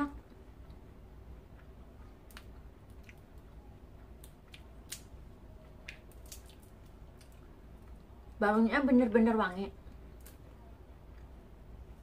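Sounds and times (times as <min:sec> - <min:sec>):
peanut shells cracking: 0:01.5 - 0:08.1, 0:09.8 - 0:10.5.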